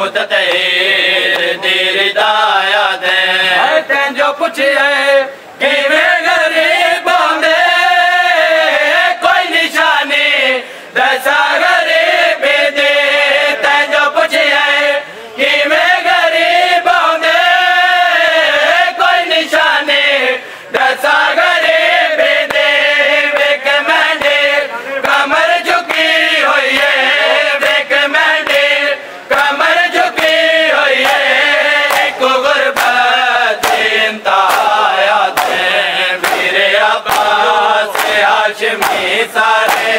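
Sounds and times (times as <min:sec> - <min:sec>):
men chanting a lament: 0:00.0 - 0:39.9
hands beating on chests: 0:31.9 - 0:32.2, 0:33.6 - 0:39.9.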